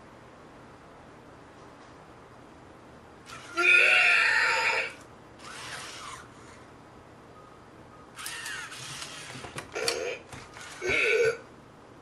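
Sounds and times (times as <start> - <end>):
toy robot electronic voice squealing: 3.3 - 6.3, 8.2 - 11.4.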